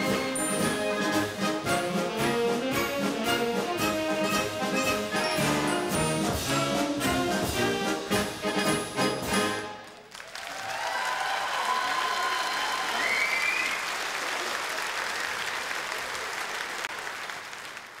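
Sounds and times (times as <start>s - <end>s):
audience applause: 9.7s - 18.0s.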